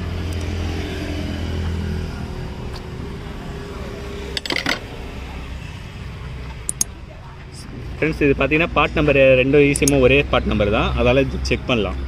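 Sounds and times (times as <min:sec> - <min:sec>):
low engine hum: 0:00.0 - 0:12.0
hose connections clicking: 0:06.6 - 0:07.0, 0:09.7 - 0:10.0.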